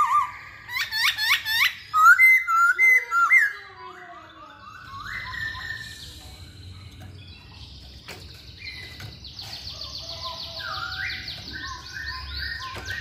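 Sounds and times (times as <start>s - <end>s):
bird singing whistles: 0.0s - 3.6s, 4.6s - 6.4s, 10.6s - 13.0s.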